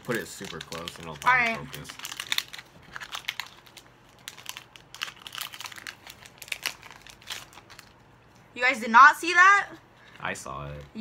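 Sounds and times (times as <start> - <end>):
foil wrapper crinkling: 0.0 - 8.1.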